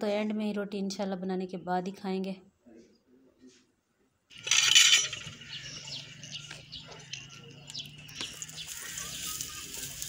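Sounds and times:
small birds chirping: 0:05.1 - 0:10.0.

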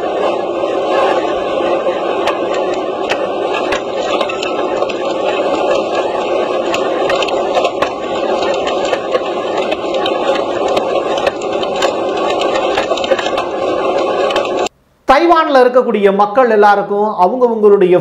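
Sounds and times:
flying debris ticking: 0:01.7 - 0:14.7.

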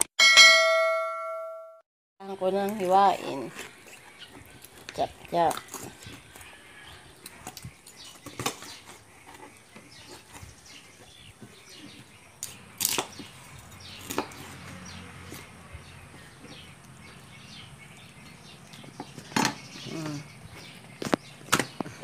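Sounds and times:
cutting and handling sounds: 0:02.4 - 0:17.3.

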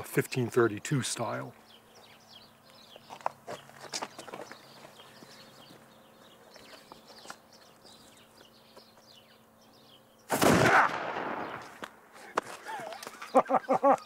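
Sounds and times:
gunshot ringing: 0:10.3 - 0:11.7.

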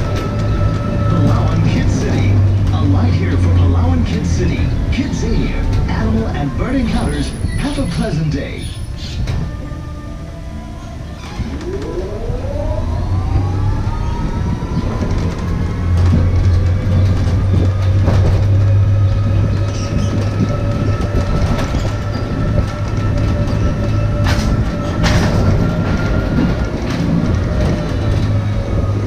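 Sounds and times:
low road rumble: 0:00.0 - 0:29.0
tram motor whining: 0:00.0 - 0:29.0.

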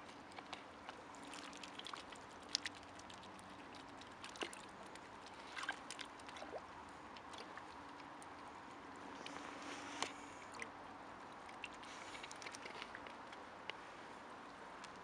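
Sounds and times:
shallow water sloshing: 0:00.0 - 0:08.6
small splashes: 0:00.0 - 0:08.6, 0:09.2 - 0:13.2.

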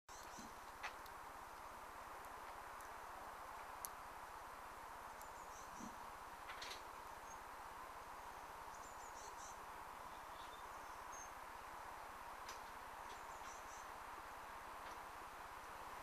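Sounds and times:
light tick: 0:00.1 - 0:03.0, 0:03.8 - 0:04.0, 0:05.1 - 0:05.9, 0:12.4 - 0:13.7
faint steady hiss: 0:00.1 - 0:16.0.

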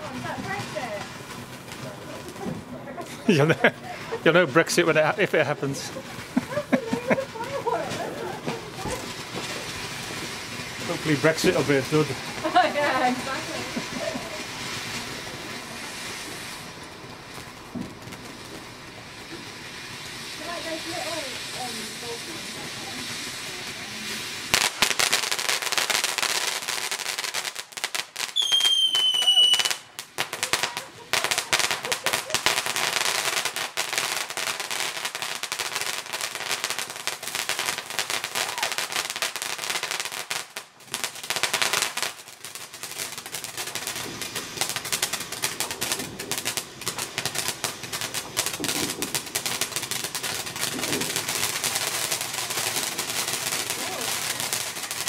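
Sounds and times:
firework fountain crackling: 0:00.0 - 0:55.0
high falling whistle: 0:28.4 - 0:29.7.

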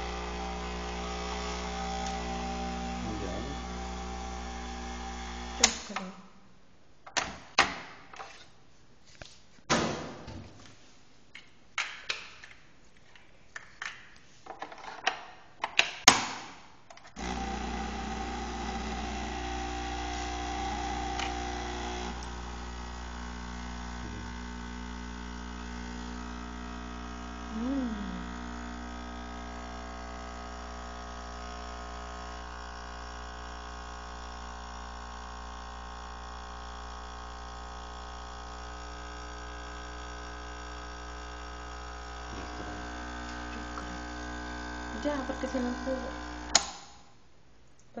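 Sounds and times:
coffee machine pump humming: 0:00.0 - 0:06.0, 0:17.2 - 0:46.7.

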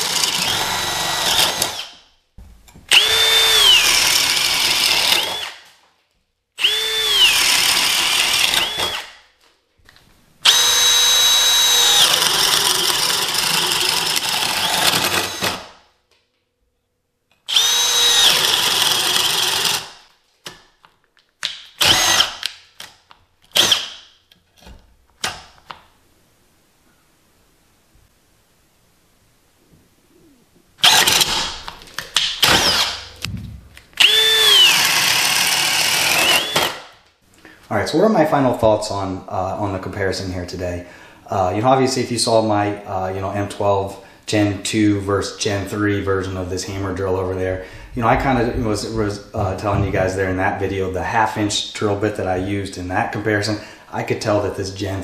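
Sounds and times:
drill motor whine: 0:00.0 - 0:01.9, 0:02.9 - 0:05.6, 0:06.6 - 0:09.1, 0:10.4 - 0:15.6, 0:17.5 - 0:19.8, 0:21.8 - 0:22.3, 0:32.4 - 0:33.2, 0:34.0 - 0:36.8.

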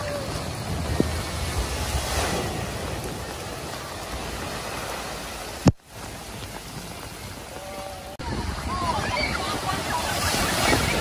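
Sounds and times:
car driving through water: 0:00.0 - 0:11.0.

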